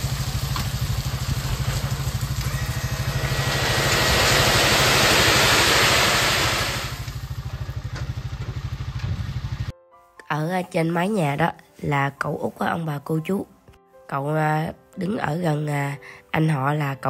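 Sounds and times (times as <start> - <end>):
gravel sliding off truck bed: 0.0 - 7.2
motor tricycle engine running: 0.0 - 9.7.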